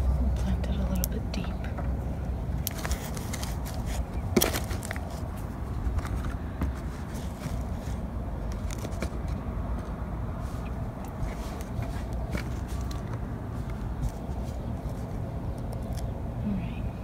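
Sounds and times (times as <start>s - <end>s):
soft rustles and plastic crackles: 0.0s - 16.2s
steady low rumble: 0.0s - 17.0s.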